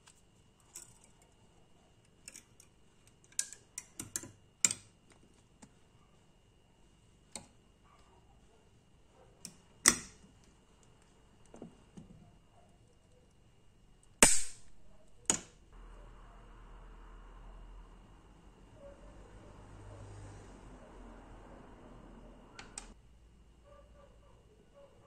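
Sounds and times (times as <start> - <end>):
pliers snipping steel wire: 9.5 - 10.2, 14.2 - 15.5.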